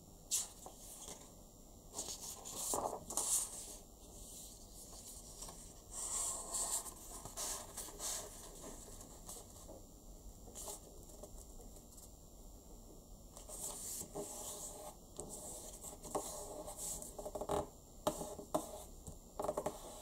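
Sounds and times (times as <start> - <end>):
paper rustling and folding: 0.3 - 1.3, 1.9 - 9.8.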